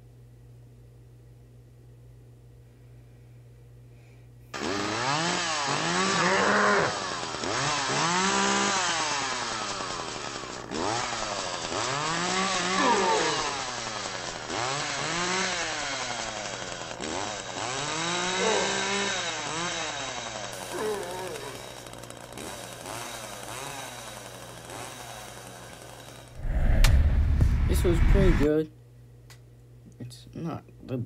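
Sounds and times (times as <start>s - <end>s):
chainsaw revving: 4.6s - 26.4s.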